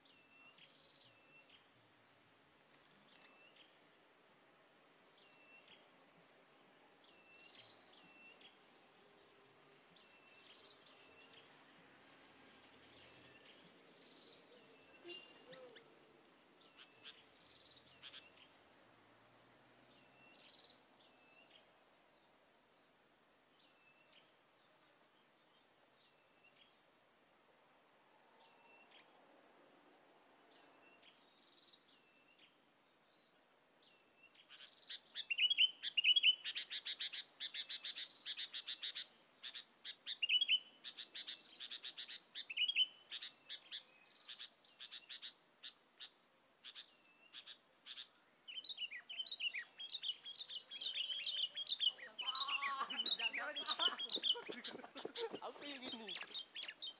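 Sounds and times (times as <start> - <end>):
birds calling: 12.5 - 18.9, 34.3 - 56.9.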